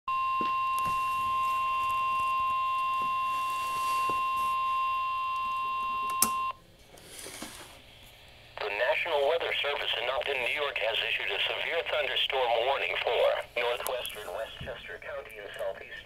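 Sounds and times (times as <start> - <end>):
harsh alarm beep from radio: 0.1 - 6.6.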